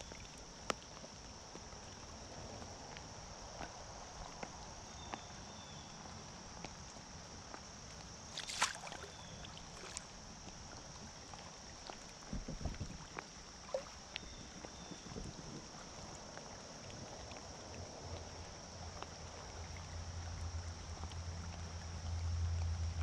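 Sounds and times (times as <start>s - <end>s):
water rushing against kayak: 0.0s - 23.0s
light ticks: 0.6s - 1.6s
water splash: 8.3s - 10.1s.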